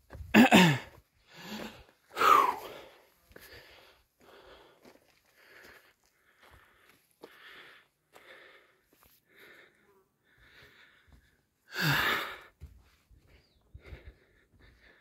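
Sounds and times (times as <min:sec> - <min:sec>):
heavy sigh: 0:00.4 - 0:04.8, 0:11.7 - 0:12.5
person breathing hard: 0:00.4 - 0:15.0.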